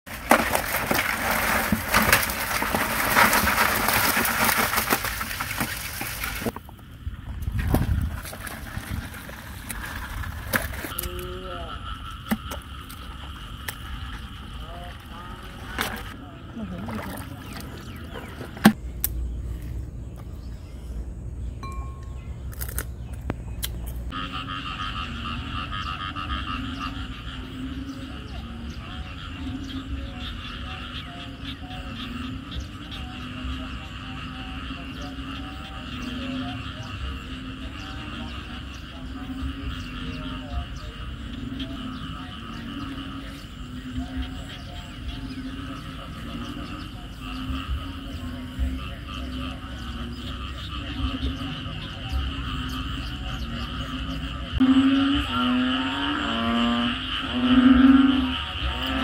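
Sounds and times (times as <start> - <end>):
frogs trilling and croaking: 0.1 - 21.5, 22.4 - 59.0
water splashing into basin: 15.7 - 18.8.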